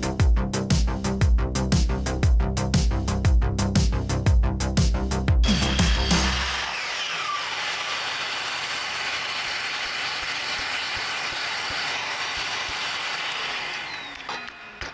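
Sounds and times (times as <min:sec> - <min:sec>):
miter saw cutting wood: 0:05.4 - 0:14.9.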